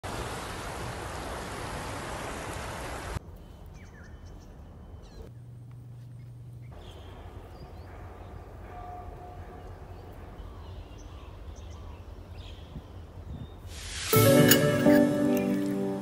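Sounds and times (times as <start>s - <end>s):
low steady hum: 3.2s - 13.4s
loud rushing hiss: 13.7s - 15.7s.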